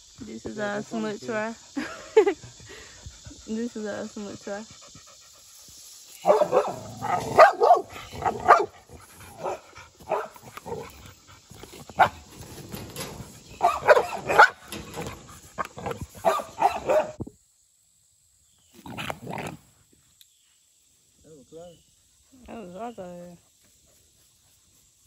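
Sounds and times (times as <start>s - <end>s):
dog barking: 6.2s - 10.4s, 12.0s - 12.2s, 13.6s - 14.6s, 16.2s - 17.2s.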